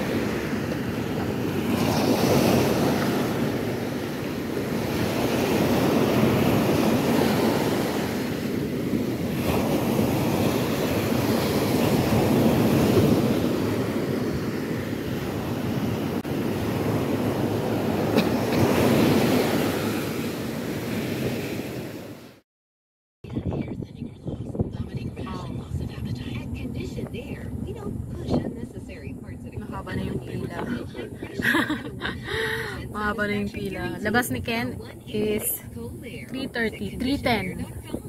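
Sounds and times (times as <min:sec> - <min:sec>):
wind buffeting microphone: 0:00.0 - 0:22.1, 0:23.2 - 0:38.0
ocean surf washing onto beach: 0:00.0 - 0:22.4.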